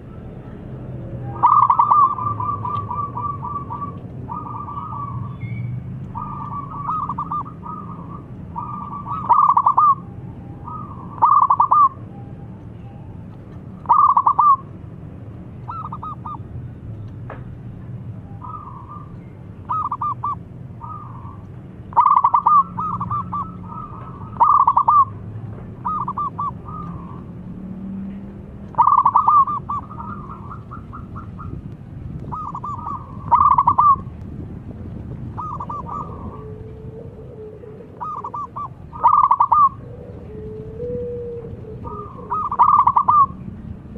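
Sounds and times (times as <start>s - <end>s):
dove cooing: 1.2s - 12.0s, 13.8s - 14.7s, 15.7s - 16.4s, 18.4s - 27.4s, 28.7s - 31.6s, 32.2s - 34.1s, 35.3s - 43.6s.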